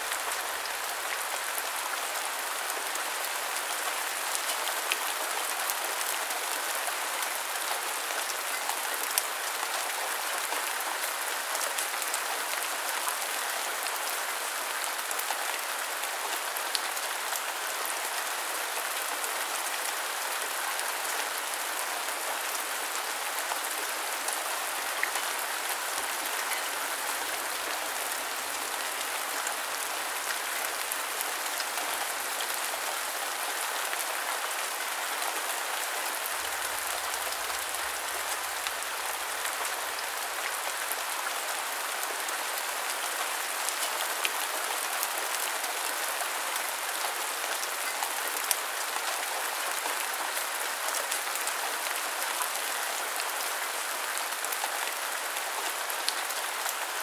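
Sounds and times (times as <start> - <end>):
steady rain hiss: 0.0 - 57.0.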